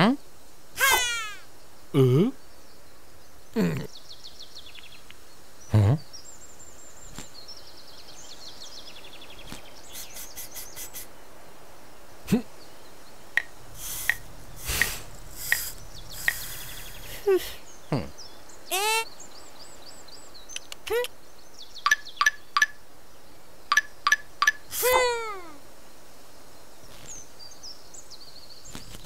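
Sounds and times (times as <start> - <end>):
cartoon character straining cries: 0.8 - 1.5, 18.7 - 19.1, 24.7 - 25.6
high falling chirps: 0.8 - 2.4, 12.3 - 19.3.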